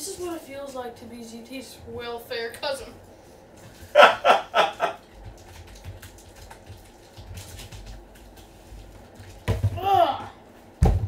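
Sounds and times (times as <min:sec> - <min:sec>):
person laughing: 0:03.9 - 0:05.0.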